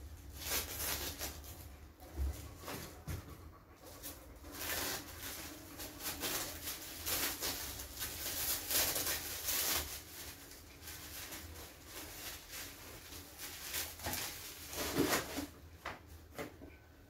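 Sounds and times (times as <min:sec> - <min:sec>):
plastic packaging crinkling: 0:00.0 - 0:01.8, 0:04.4 - 0:15.6.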